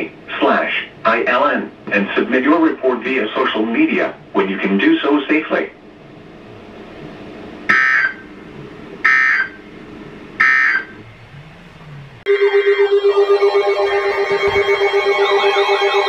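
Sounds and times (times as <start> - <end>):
radio data bursts: 7.7 - 9.7, 10.4 - 11.8
pulsing electronic warbling tones: 7.7 - 16.0.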